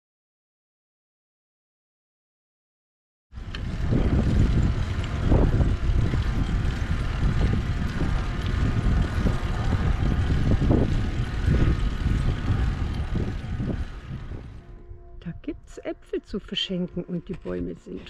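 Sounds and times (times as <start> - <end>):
bicycle wheels rolling on asphalt: 3.4 - 14.8
wind noise on microphone: 3.4 - 18.0.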